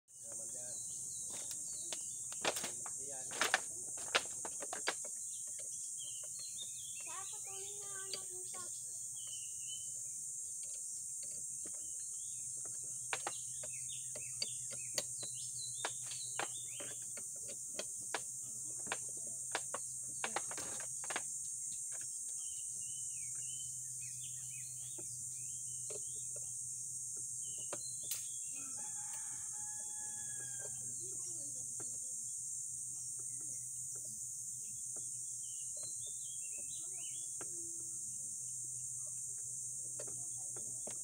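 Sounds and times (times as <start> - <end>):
high insect drone: 0.2 - 41.0
bird chirps: 5.2 - 17.2, 21.4 - 26.5, 27.2 - 29.2, 32.9 - 38.0.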